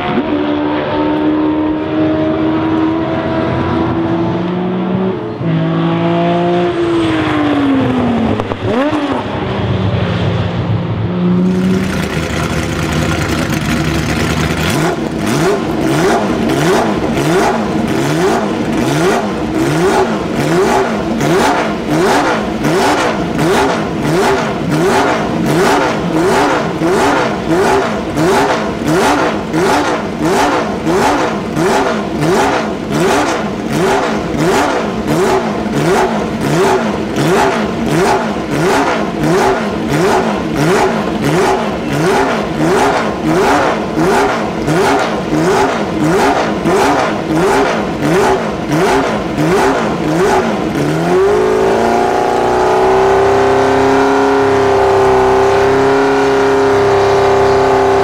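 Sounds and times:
racing car engine revving: 0.0 - 58.0.

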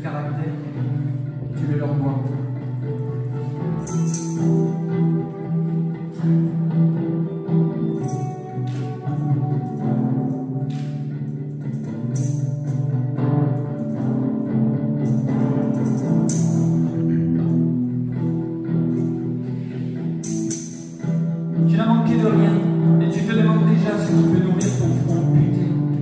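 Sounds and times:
electric guitars ringing chords: 0.0 - 26.0
tambourine jingling: 2.4 - 26.0.

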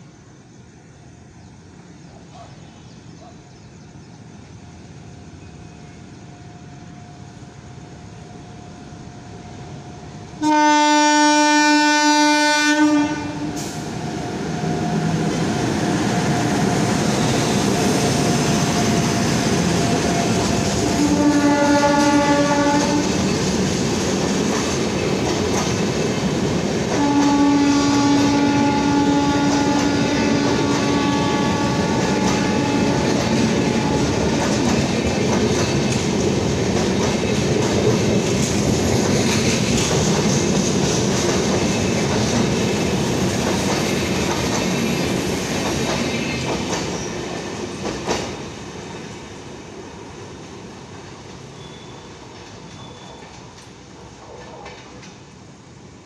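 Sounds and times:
train rumbling past: 0.0 - 56.0
locomotive horn blasts: 10.4 - 13.6, 20.9 - 23.1, 27.0 - 34.4
wheels clicking on rails: 22.8 - 27.3, 32.0 - 48.4.

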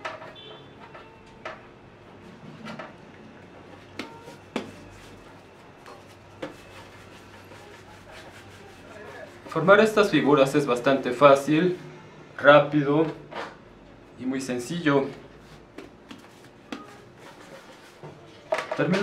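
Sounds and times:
dough knocks and taps: 15.7 - 16.9.

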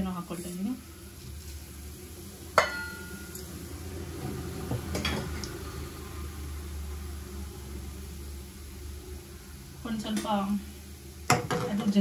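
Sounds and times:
steel bowl clinking on metal pan: 2.6 - 3.4.

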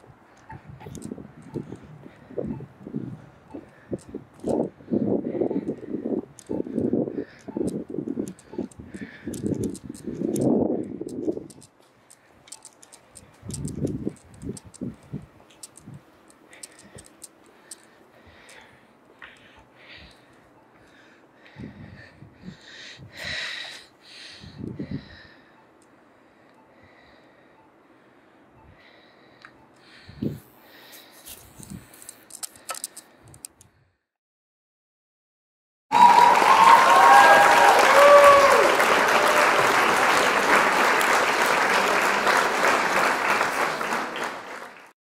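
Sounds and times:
faint clicks and ticks: 0.3 - 4.8, 5.4 - 21.8, 28.6 - 33.8
loud applause: 35.9 - 44.9.

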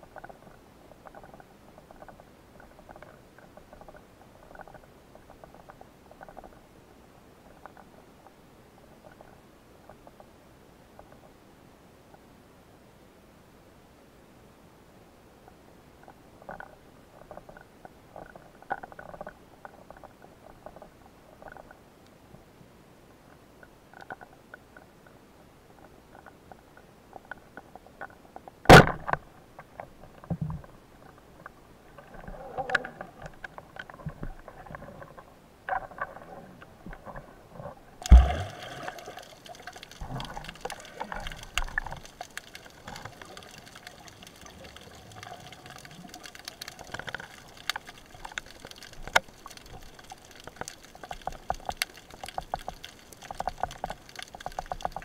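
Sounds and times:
water clicks and sloshing: 0.0 - 6.6, 16.0 - 21.8, 23.3 - 55.0
muffled underwater noise: 31.9 - 33.4
bubbling: 38.0 - 55.0.

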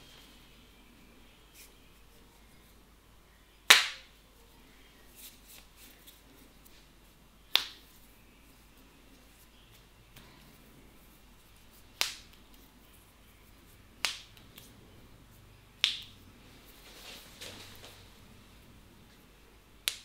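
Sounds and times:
sharp hand slaps: 3.7 - 4.1, 7.5 - 7.8, 12.0 - 12.5, 14.0 - 14.7, 15.8 - 16.1.

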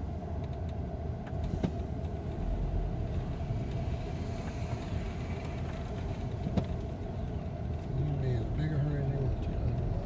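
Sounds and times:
vehicle engine and road rumble: 0.0 - 10.0.

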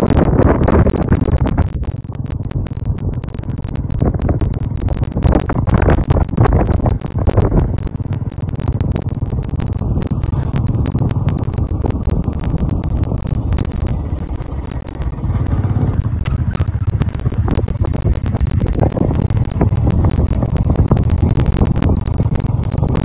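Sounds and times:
wind buffeting microphone: 0.0 - 8.4
motorcycle engine cruising: 6.5 - 23.0.

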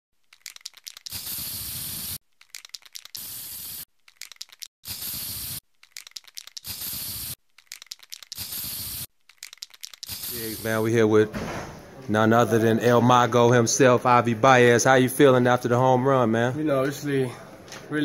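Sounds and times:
spray can rattling: 0.2 - 10.7
aerosol spray hissing: 1.1 - 2.2, 3.1 - 3.9, 4.8 - 5.6, 6.6 - 7.4, 8.3 - 9.1, 10.0 - 10.8.

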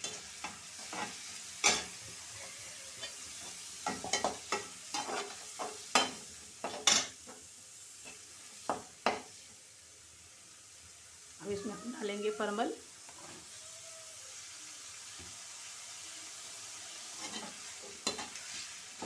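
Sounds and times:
metal spoon scraping a pan: 0.0 - 2.2, 2.9 - 7.3, 17.1 - 19.0
oil sizzling: 0.0 - 19.0.

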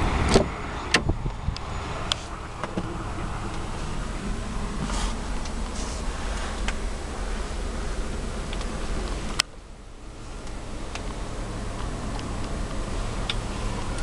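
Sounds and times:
low rumble and hiss: 0.0 - 14.0
light ticks: 8.5 - 9.6, 10.4 - 14.0.

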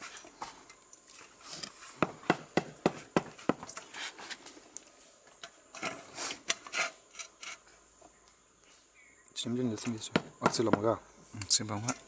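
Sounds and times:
scraping and handling noises: 3.0 - 7.8.

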